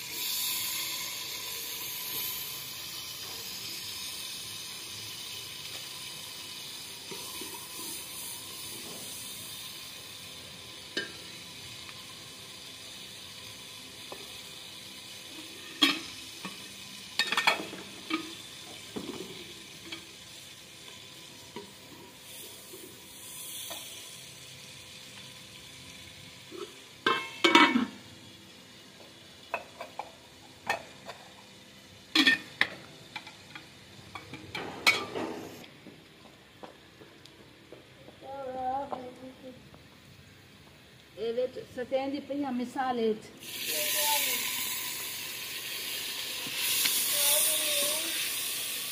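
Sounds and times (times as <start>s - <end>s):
onions sizzling in hot oil: 0.0s - 35.6s, 42.1s - 48.9s.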